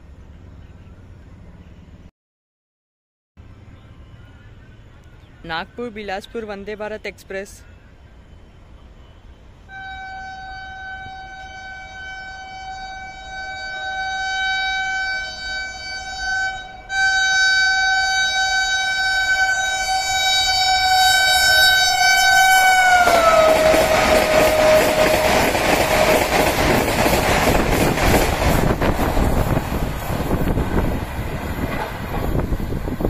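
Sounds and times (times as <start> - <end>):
high-speed train rushing: 5.5 - 33.0
train horn blasts: 9.2 - 27.7.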